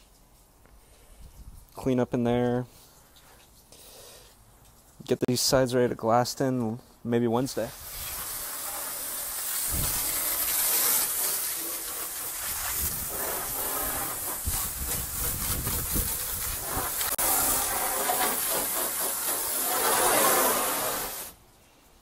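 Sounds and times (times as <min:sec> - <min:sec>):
pressure washer spraying: 0:07.7 - 0:21.4.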